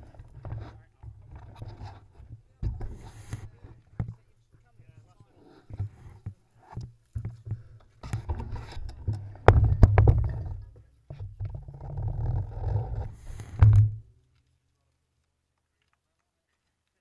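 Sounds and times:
sharp clicks and knocks: 5.7s - 14.5s.

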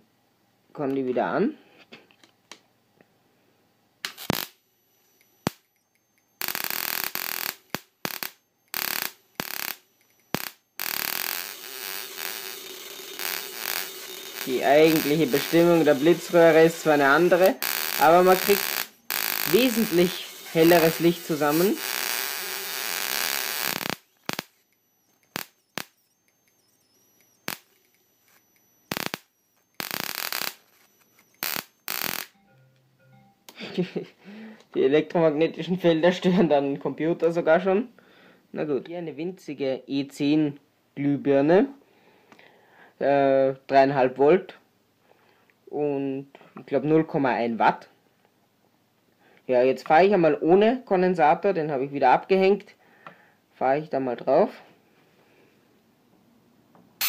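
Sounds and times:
crackling electric arc buzz: 4.0s - 32.4s
electric spark snaps: 4.0s - 32.4s.

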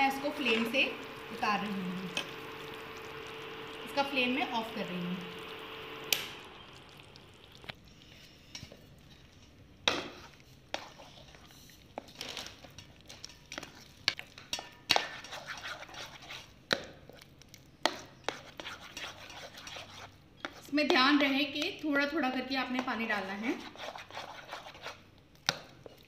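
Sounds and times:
hot syrup hissing: 0.0s - 7.7s
spoon beating batter in bowl: 12.8s - 21.8s, 22.6s - 26.0s.

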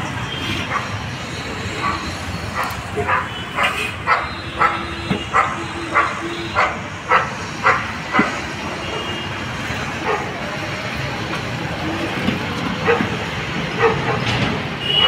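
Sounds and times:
dog barking: 1.8s - 8.3s, 10.0s - 10.4s, 12.8s - 14.4s.

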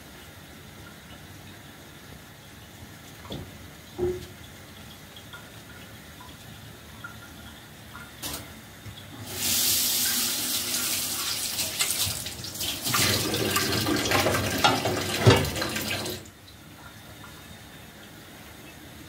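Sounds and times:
water running into metal sink: 8.2s - 16.3s.

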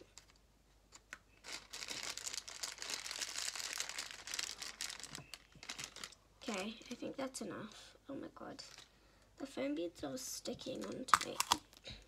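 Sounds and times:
plastic bag of beads crinkling: 0.0s - 7.0s, 8.6s - 8.9s, 10.8s - 11.8s.

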